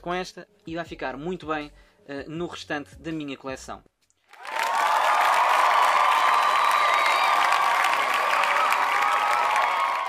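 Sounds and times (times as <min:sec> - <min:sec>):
crowd applauding and cheering: 0:04.3 - 0:10.0.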